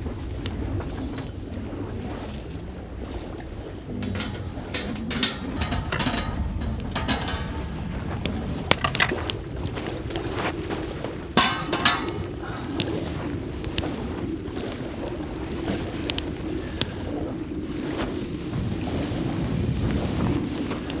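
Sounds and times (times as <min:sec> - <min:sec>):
cookware clinking and knocking: 0:04.0 - 0:07.8, 0:11.4 - 0:12.3.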